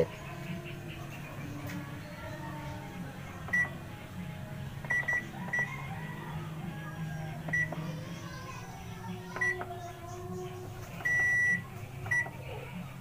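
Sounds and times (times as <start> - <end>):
short electronic beeps: 4.9 - 5.7, 11.0 - 12.3.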